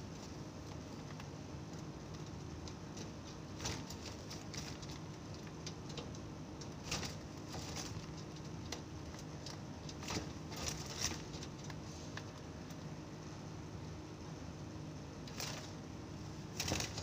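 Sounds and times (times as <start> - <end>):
bird feet and wings on mesh: 0.0 - 17.0
steady low hum: 0.0 - 17.0.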